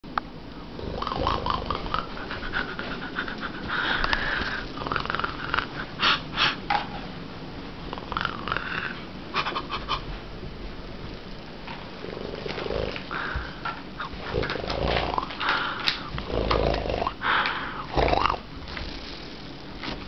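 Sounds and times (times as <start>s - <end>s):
playful growls: 0.8s - 2.2s, 16.2s - 17.2s, 17.9s - 18.5s.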